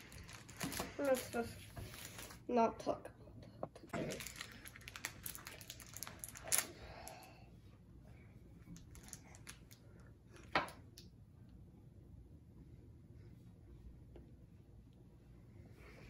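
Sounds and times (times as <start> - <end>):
plastic wrapper crinkling: 0.0 - 2.4, 4.0 - 6.7, 8.8 - 9.8.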